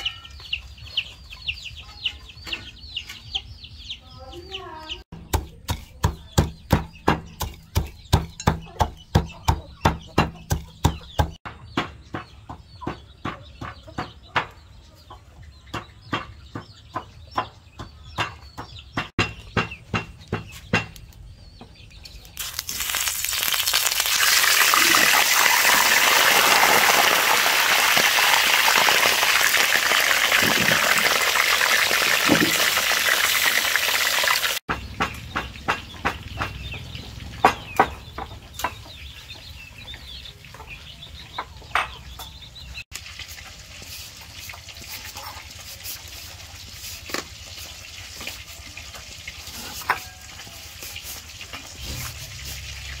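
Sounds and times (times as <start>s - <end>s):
food sizzling in hot oil: 22.4s - 34.6s, 42.9s - 53.0s.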